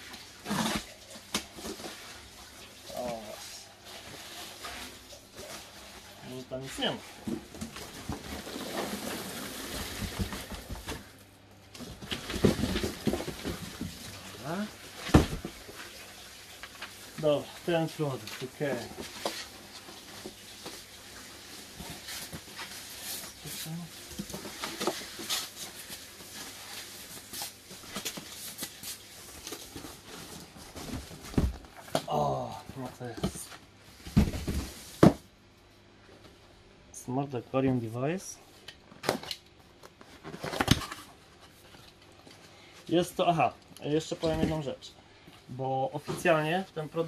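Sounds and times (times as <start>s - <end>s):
packing peanuts and cardboard rustling: 0.1s - 33.5s.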